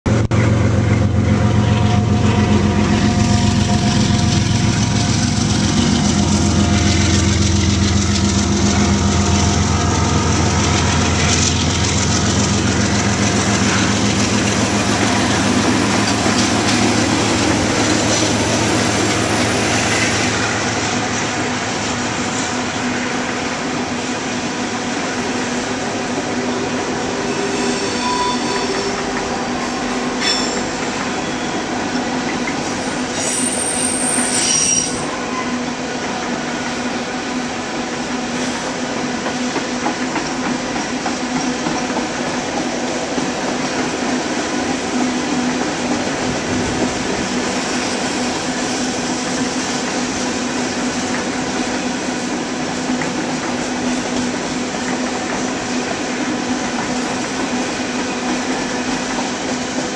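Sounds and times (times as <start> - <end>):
diesel locomotive engines: 0.1 - 59.9
train wheels on rails: 0.1 - 59.9
wheel squeal: 27.2 - 31.8, 32.8 - 35.6.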